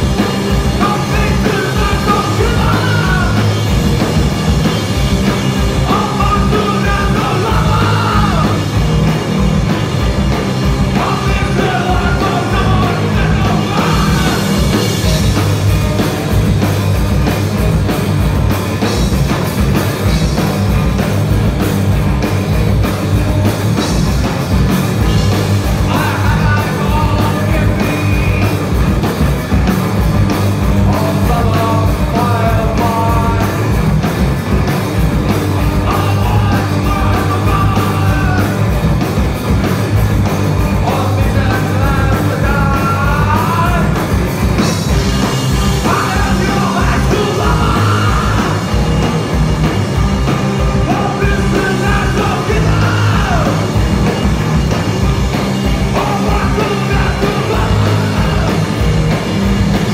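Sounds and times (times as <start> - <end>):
rock band playing: 0.0 - 59.9
man singing: 0.6 - 3.6, 5.8 - 8.8, 10.8 - 15.0, 25.7 - 28.8, 30.7 - 33.7, 35.6 - 38.7, 40.7 - 44.1, 45.6 - 48.7, 50.7 - 53.7, 55.8 - 58.8.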